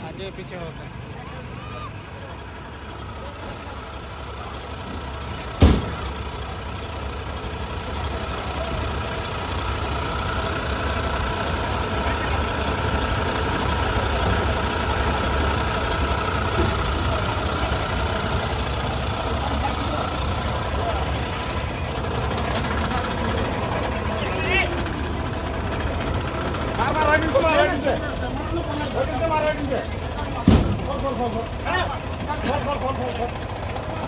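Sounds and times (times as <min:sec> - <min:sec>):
engine running: 0:00.0 - 0:34.0
sharp knock: 0:05.6 - 0:06.0.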